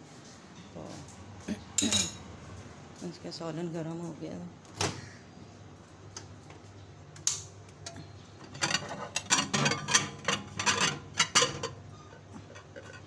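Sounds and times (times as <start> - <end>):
glass dish clinking on turntable: 1.8 - 2.2.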